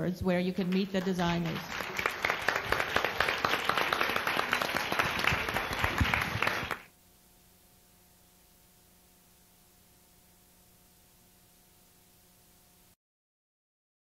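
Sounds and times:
faint steady hum: 0:00.0 - 0:13.0
audience applauding: 0:00.6 - 0:06.9.

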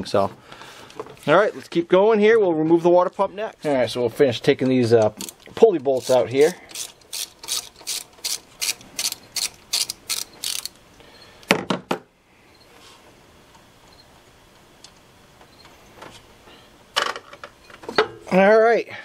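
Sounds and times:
hand ratchet clicking: 0:05.2 - 0:10.8.

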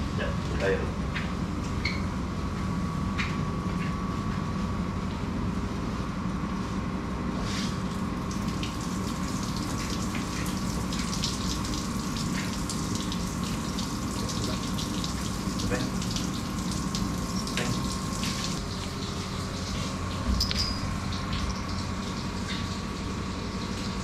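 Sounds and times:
water from hose splashing: 0:07.4 - 0:24.0
outboard motor idling: 0:16.4 - 0:24.0.

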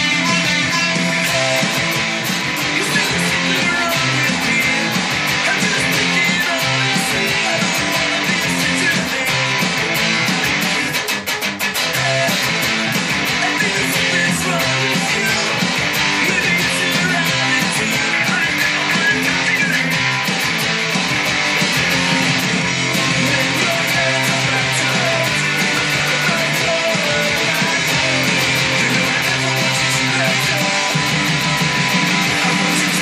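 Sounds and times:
drums keeping quick beat: 0:00.0 - 0:33.0
electric guitar strumming punk chords: 0:00.0 - 0:33.0.

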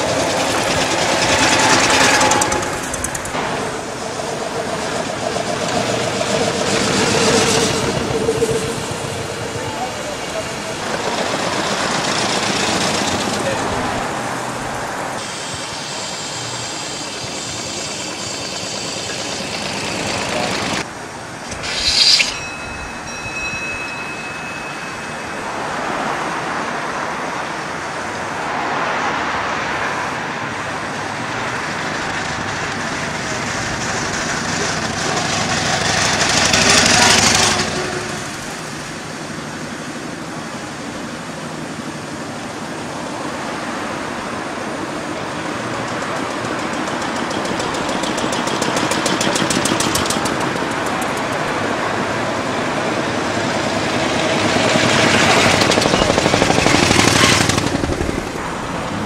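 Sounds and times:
vehicle passing close: 0:00.0 - 0:38.9, 0:43.3 - 0:59.0
street traffic passing: 0:00.0 - 0:59.0
brief sharp burst: 0:21.4 - 0:22.5.

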